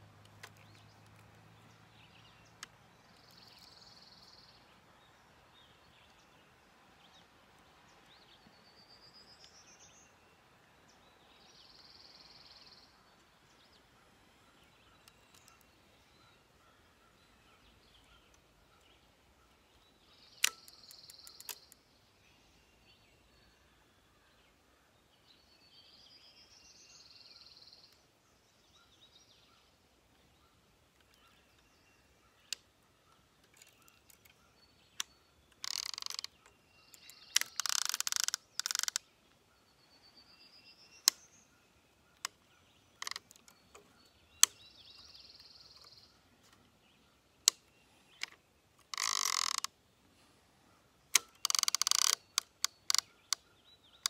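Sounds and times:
songbird singing: 0.0s - 54.0s
fishing reel scraping and clicking: 35.6s - 36.3s, 37.0s - 39.0s, 48.8s - 49.7s, 51.2s - 53.1s.

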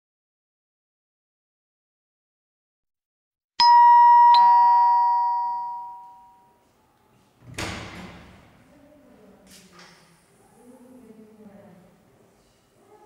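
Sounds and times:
two-tone doorbell chime: 3.6s - 6.6s.

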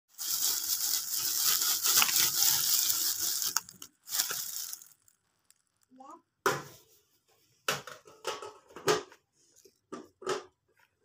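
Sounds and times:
balloons rustling and crinkling: 0.1s - 6.0s.

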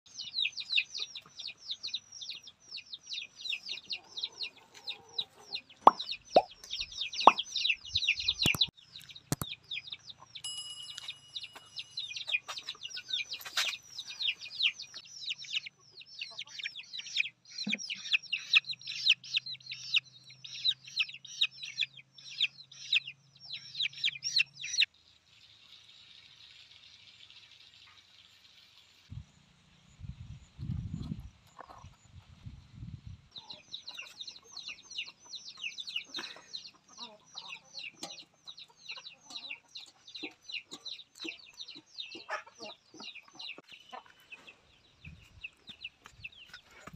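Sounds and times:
chicks peeping: 0.1s - 10.4s, 11.4s - 24.9s, 30.0s - 46.9s.

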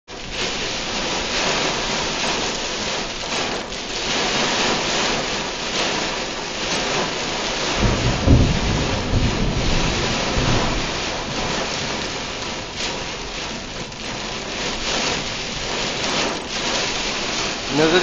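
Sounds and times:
heavy rain on a car: 0.1s - 18.0s
low rumble: 7.8s - 18.0s.

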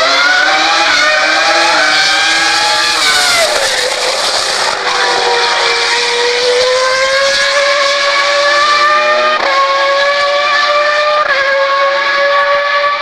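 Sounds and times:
racing car engine at high revs: 0.0s - 13.0s.

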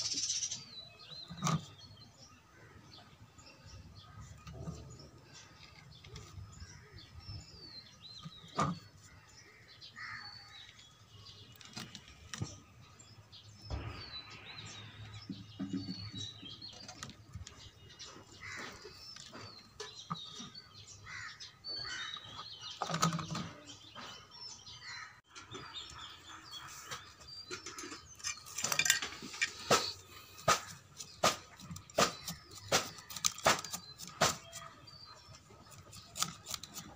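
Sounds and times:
small birds chirping: 0.0s - 36.9s
hands handling plant and soil: 26.6s - 36.9s
sharp clicks and scrapes: 26.9s - 34.7s, 35.3s - 36.9s.

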